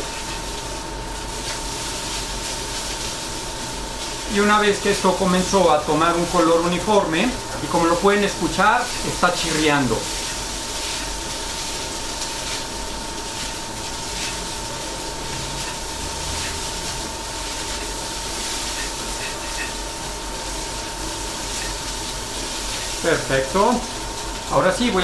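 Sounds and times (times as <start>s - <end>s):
induction cooker whine: 0.0s - 25.0s
rice sizzling in a wok: 0.0s - 25.0s
spatula scraping: 8.5s - 23.1s.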